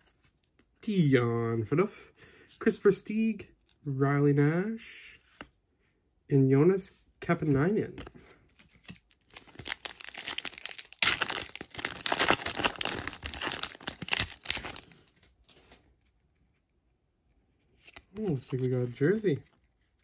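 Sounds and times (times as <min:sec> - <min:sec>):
foil wrapper tearing and crinkling: 0:09.1 - 0:15.1.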